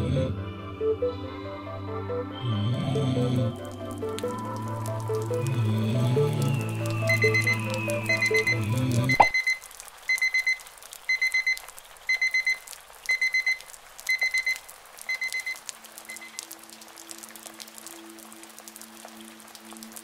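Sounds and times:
music: 0.0s - 9.2s, 16.4s - 20.0s
alarm clock beeping: 7.1s - 16.3s.

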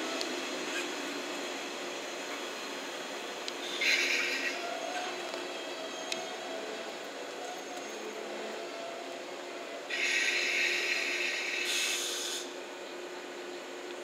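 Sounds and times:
electric train equipment humming: 0.0s - 14.0s
compressed air hiss: 10.0s - 12.5s.

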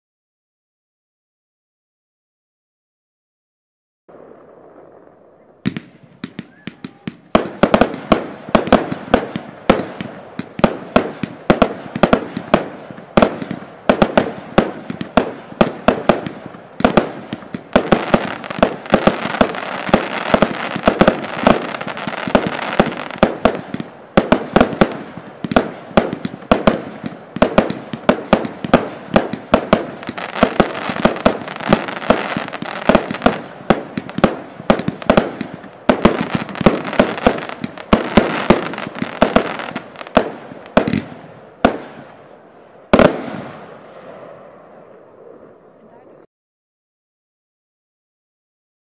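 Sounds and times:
small aerial firework bursts: 5.6s - 42.1s.

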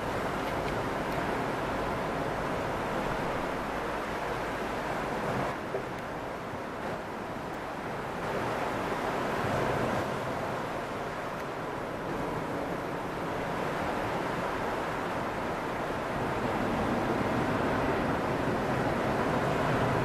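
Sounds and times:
ocean surf: 0.0s - 20.0s
wind: 0.0s - 20.0s.

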